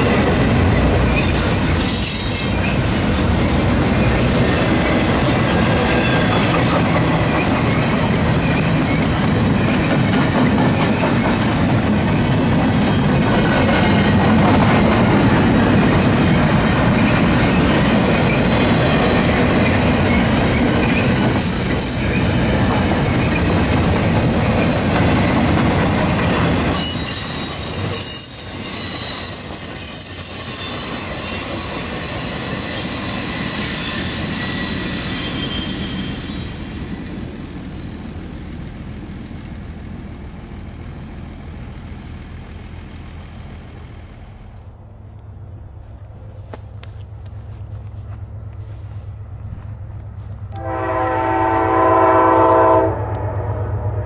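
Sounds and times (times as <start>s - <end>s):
freight train wheels rumbling: 0.0s - 54.0s
high-pitched wheel squeal: 1.1s - 5.0s, 20.1s - 22.4s, 24.2s - 38.2s.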